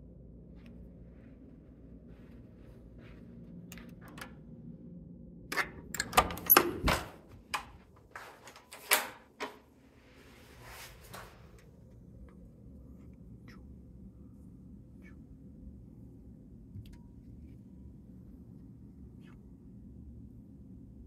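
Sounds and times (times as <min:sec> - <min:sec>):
electronic door lock clicks: 0:05.5 - 0:07.2
door handle and latch clack: 0:05.5 - 0:07.8.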